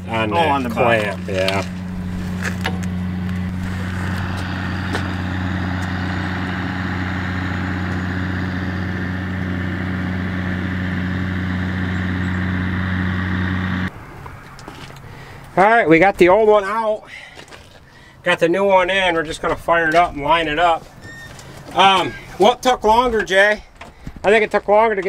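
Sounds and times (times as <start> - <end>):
vehicle engine idling: 0.0 - 15.6.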